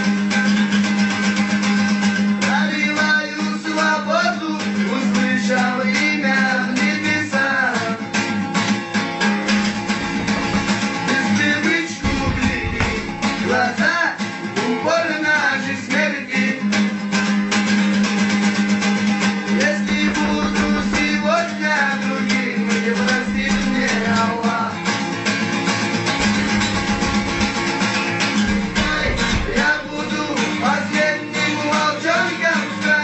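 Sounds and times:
acoustic guitar strumming: 0.0 - 33.0
person singing: 19.6 - 24.8, 28.5 - 33.0.

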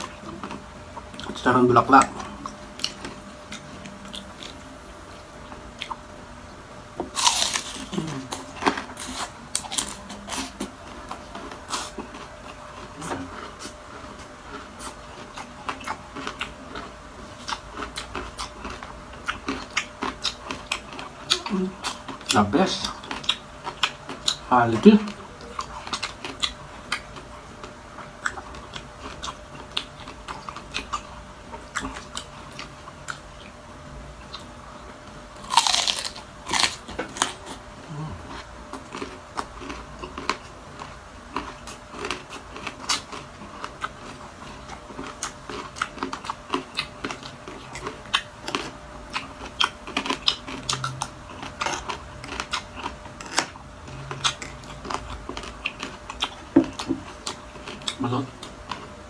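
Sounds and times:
crunchy chewing: 0.0 - 6.1, 7.0 - 59.0.

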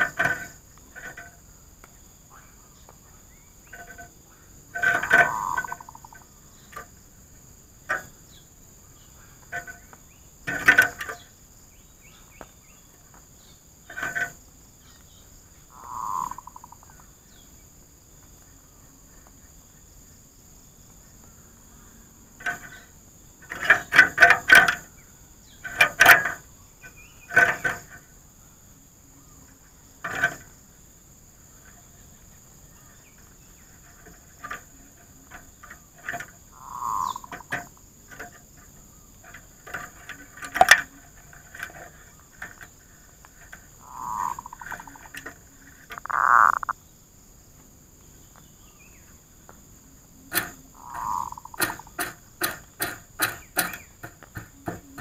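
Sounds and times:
doves cooing: 2.3 - 6.8, 15.7 - 17.1, 32.9 - 46.8, 50.0 - 55.0.

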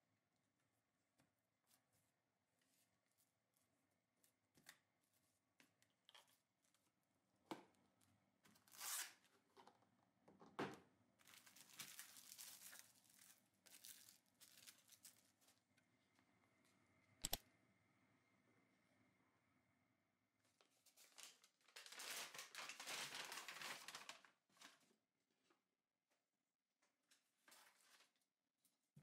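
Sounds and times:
plastic wrap tearing: 8.6 - 9.2, 11.2 - 15.3, 21.1 - 24.3
plastic wrap crinkling: 11.2 - 15.6, 20.9 - 24.8
sharp click: 17.2 - 17.4.

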